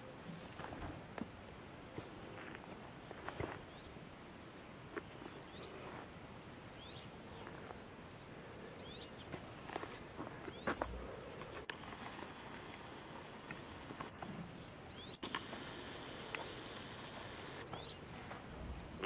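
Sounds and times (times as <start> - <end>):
steady outdoor hiss: 0.0 - 19.0
bird chirps: 13.2 - 18.8
sharp clicks: 15.2 - 17.8.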